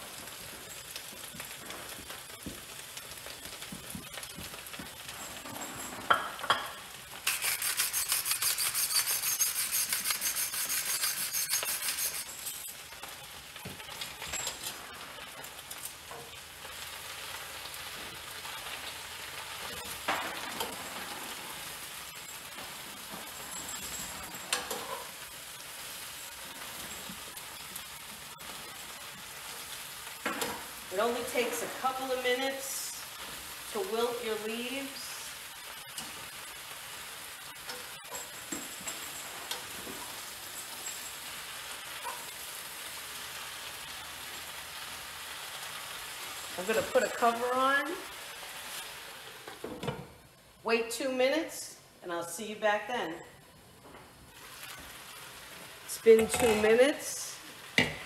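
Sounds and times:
greens sizzling in oil: 0.0s - 51.2s, 52.3s - 58.0s
utensils clicking against pan: 7.2s - 12.7s, 56.0s - 56.8s
pepper mill grinding: 7.2s - 12.8s.

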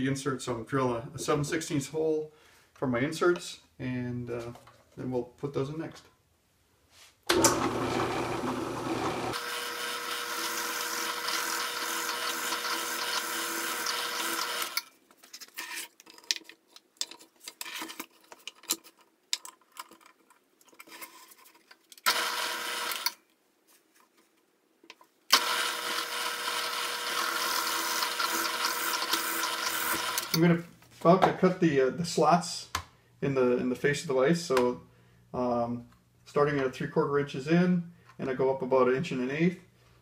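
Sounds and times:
drill press motor running: 7.3s - 14.8s, 22.1s - 23.2s, 25.3s - 30.4s.

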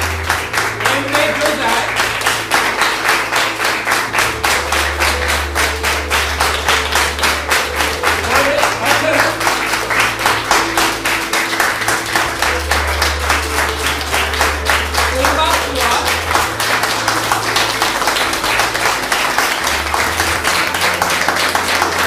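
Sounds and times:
audience clapping in rhythm: 0.0s - 22.0s.

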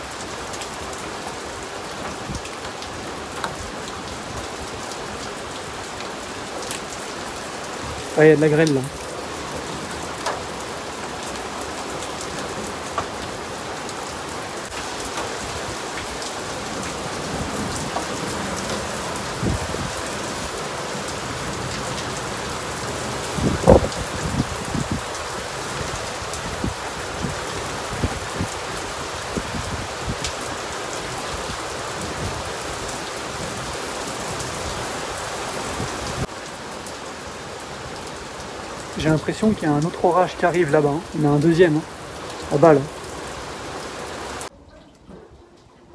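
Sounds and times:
heavy rain with hail: 0.0s - 44.5s
hailstones ticking on hard surfaces: 0.6s - 5.3s, 8.0s - 14.0s, 14.7s - 20.3s.

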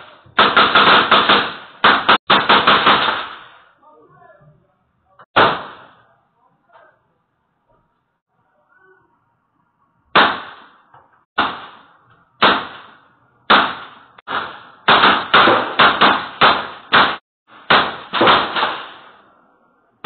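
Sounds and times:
gunshots with echo: 0.4s - 3.6s, 5.4s - 6.0s, 10.2s - 10.8s, 11.4s - 19.2s.

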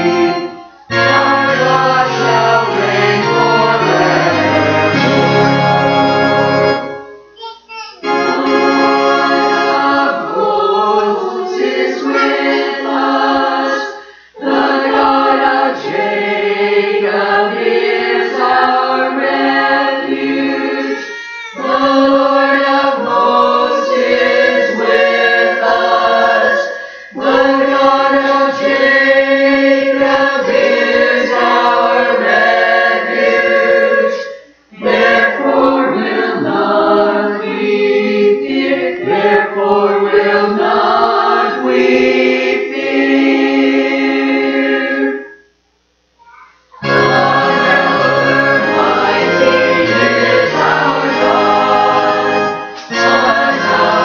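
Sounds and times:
choir singing: 0.0s - 7.1s, 8.0s - 45.4s, 46.2s - 54.0s
low keyboard notes: 46.8s - 54.0s.

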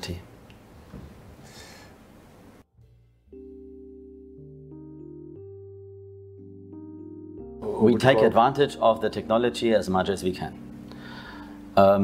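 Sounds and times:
soft keyboard chords: 2.6s - 12.0s.

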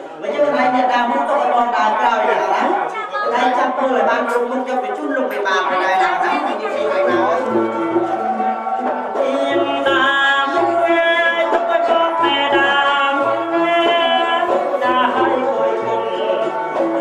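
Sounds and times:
amplified backing music: 4.0s - 17.0s
man singing into a microphone: 8.7s - 17.0s.

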